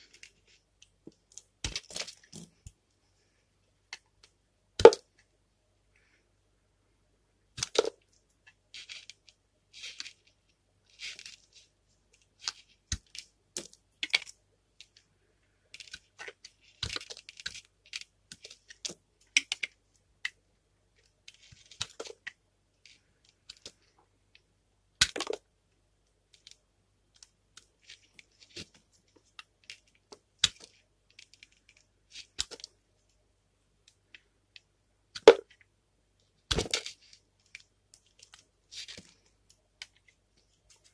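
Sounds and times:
soap cracking and crunching: 0:00.0 - 0:02.8, 0:07.5 - 0:11.4, 0:15.7 - 0:20.4, 0:25.0 - 0:25.4, 0:26.3 - 0:32.8, 0:36.4 - 0:40.9
knife scraping soap: 0:15.7 - 0:19.8.

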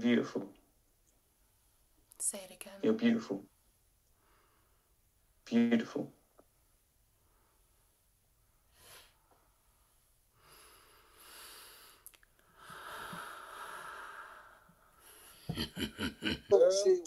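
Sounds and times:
breathy exhalations: 0:10.4 - 0:15.6.

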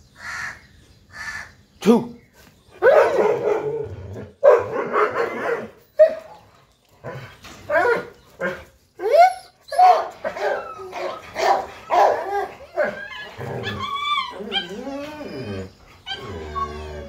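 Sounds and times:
dogs yelping and whining: 0:02.7 - 0:17.0
dogs barking: 0:02.8 - 0:06.4, 0:09.7 - 0:14.8.

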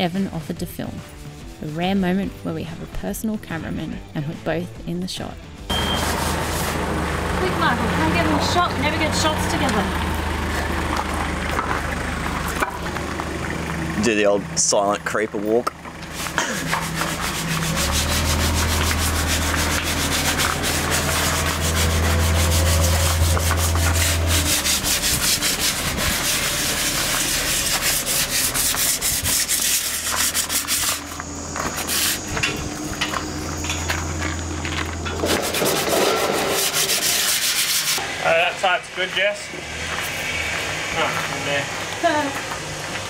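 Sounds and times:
hand sanding scratchy strokes: 0:00.9 - 0:02.1, 0:06.0 - 0:06.9, 0:16.0 - 0:33.5, 0:35.2 - 0:38.0.

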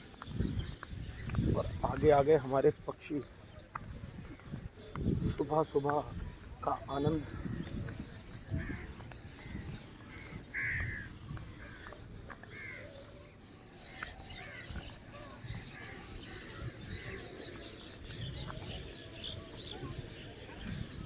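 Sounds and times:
crows cawing: 0:10.1 - 0:11.9, 0:12.5 - 0:12.9.

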